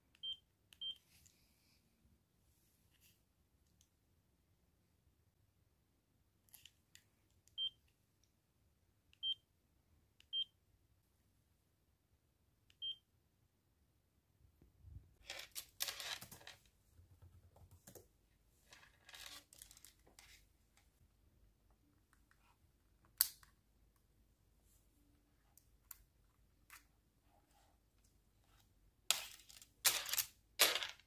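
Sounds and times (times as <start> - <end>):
rustling handling noise: 17.8 - 21.0.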